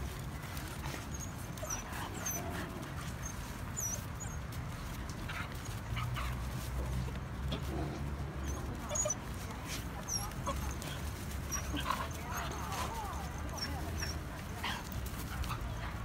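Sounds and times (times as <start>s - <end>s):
puppies whimpering: 0.6s - 4.5s, 8.4s - 15.8s.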